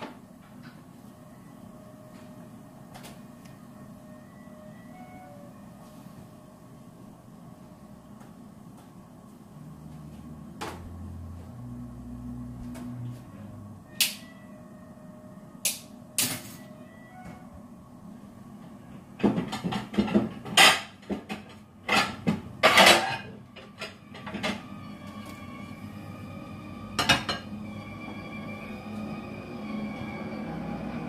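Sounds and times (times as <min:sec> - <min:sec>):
crockery and cutlery clattering: 0:19.2 - 0:24.6.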